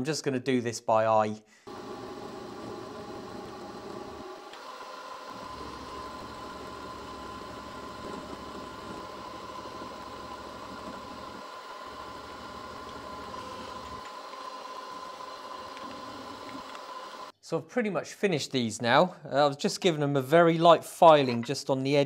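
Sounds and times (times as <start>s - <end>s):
milling machine whining: 1.7s - 17.3s.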